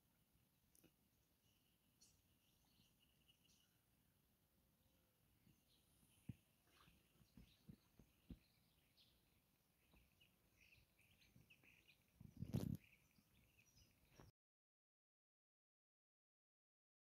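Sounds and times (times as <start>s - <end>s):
bird chirps: 1.4s - 4.0s, 4.8s - 14.3s.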